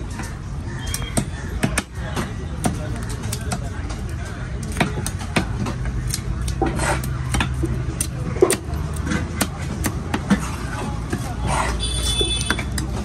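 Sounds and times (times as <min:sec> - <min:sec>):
knife chopping on wooden block: 0:00.9 - 0:03.7.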